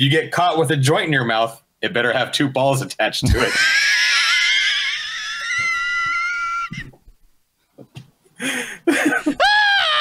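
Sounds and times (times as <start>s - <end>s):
men laughing with high squeals: 3.3s - 7.0s, 8.8s - 10.0s.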